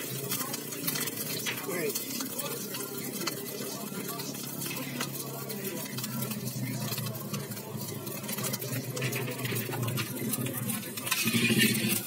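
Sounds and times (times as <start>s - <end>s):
metal spatula scraping a wok: 8.1s - 12.0s.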